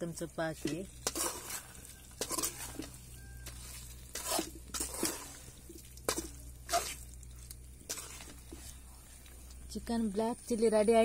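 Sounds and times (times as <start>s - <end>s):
thick food squelching: 0.5s - 9.8s
ladle scraping a pan: 0.6s - 9.3s.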